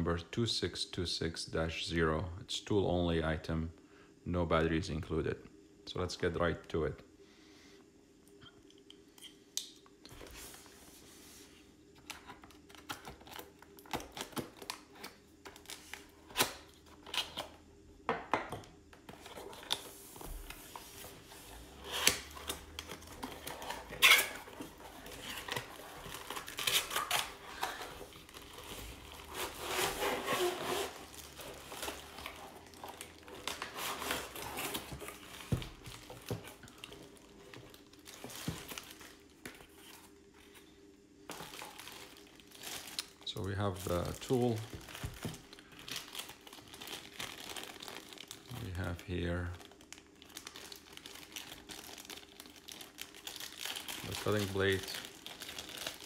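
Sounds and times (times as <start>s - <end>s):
plastic bag crinkling: 21.5s - 39.9s, 41.3s - 56.0s
cardboard scraping and tearing: 28.5s - 32.6s.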